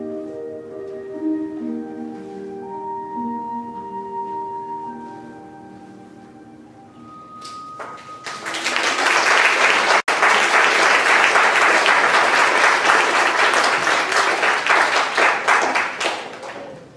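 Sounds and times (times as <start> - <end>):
ringing music note: 0.0 - 8.7
audience applauding: 7.8 - 16.9.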